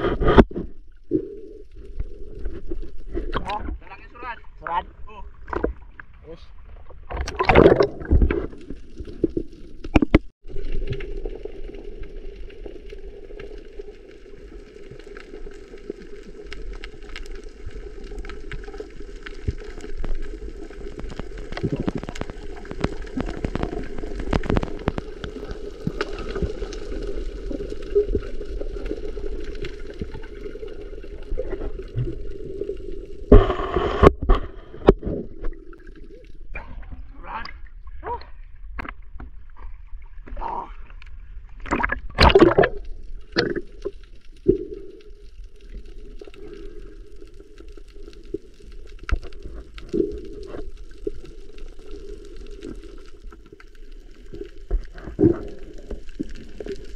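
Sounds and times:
water splashing: 0:00.0 - 0:56.9
clicks and crackles: 0:07.0 - 0:36.4, 0:40.9 - 0:56.9
muffled underwater hiss: 0:12.5 - 0:35.8.

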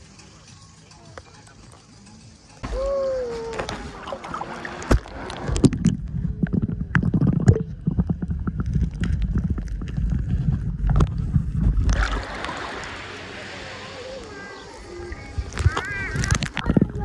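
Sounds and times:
underwater rumble of moving water: 0:02.6 - 0:17.0
underwater clicks and pops: 0:03.5 - 0:12.6, 0:15.5 - 0:17.0.

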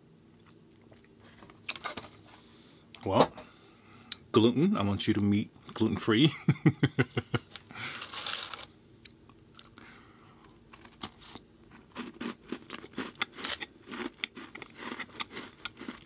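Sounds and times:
crunching cookie bites: 0:10.5 - 0:16.0.

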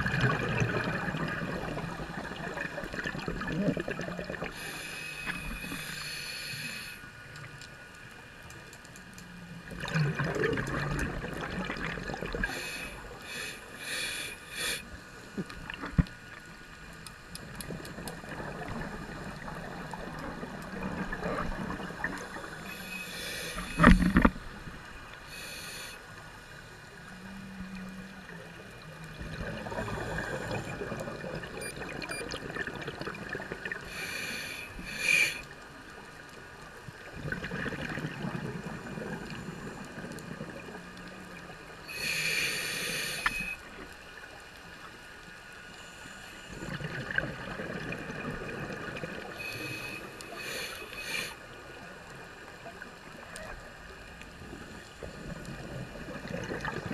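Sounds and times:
gurgling exhaled bubbles: 0:00.0 - 0:04.7, 0:09.7 - 0:12.8, 0:17.5 - 0:24.4, 0:29.1 - 0:34.0, 0:37.0 - 0:40.9, 0:46.5 - 0:50.5, 0:54.4 - 0:56.9
regulator hissing inhales: 0:04.5 - 0:07.1, 0:12.4 - 0:14.9, 0:22.3 - 0:24.1, 0:25.3 - 0:26.1, 0:33.9 - 0:35.4, 0:41.9 - 0:43.6, 0:49.4 - 0:51.4.

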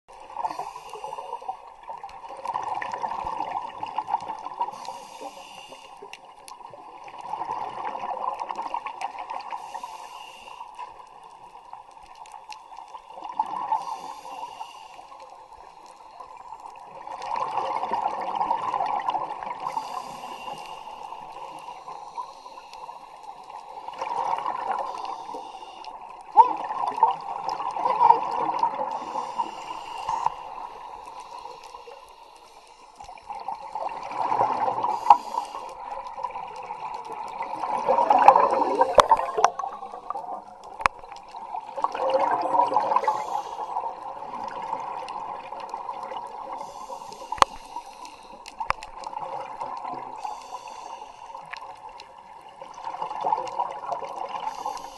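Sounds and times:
muffled underwater bubbling: 0:15.6 - 0:54.9.

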